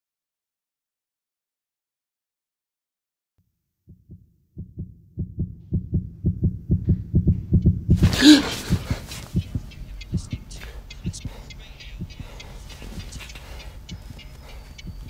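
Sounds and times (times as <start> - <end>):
heartbeat thumps: 3.9 - 15.0.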